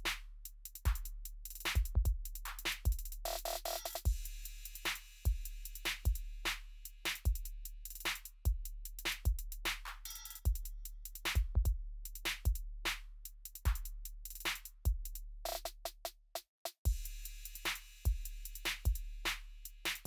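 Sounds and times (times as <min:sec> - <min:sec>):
electronic music with drum beat: 0:00.0 - 0:16.1, 0:16.9 - 0:20.0.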